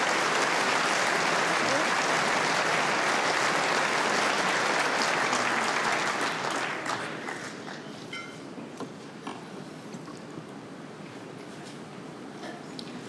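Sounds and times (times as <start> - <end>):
audience applauding: 0.0 - 7.9.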